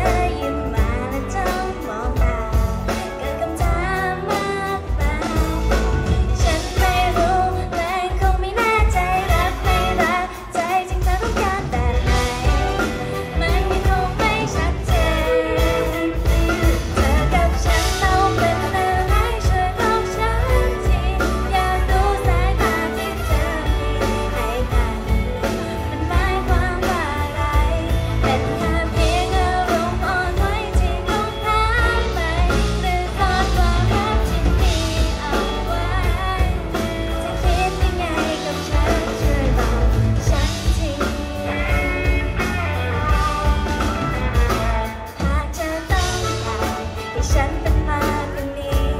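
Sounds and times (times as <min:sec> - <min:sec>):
drums: 0:00.0 - 0:48.9
live band playing pop song: 0:00.0 - 0:48.9
woman singing into microphone: 0:00.0 - 0:48.9.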